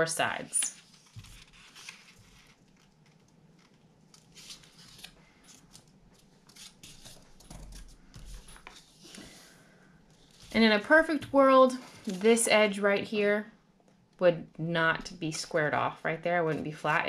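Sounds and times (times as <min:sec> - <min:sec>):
paper folding and rustling: 0:00.6 - 0:09.4, 0:10.1 - 0:10.8, 0:11.7 - 0:12.4.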